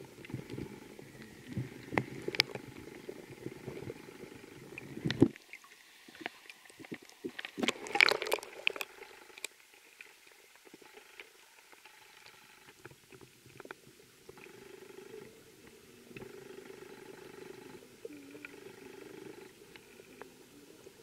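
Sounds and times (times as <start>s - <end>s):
faint scattered ticks: 0.0s - 21.0s
muffled underwater stream water: 0.0s - 21.0s
crackling and clicking: 0.2s - 14.5s.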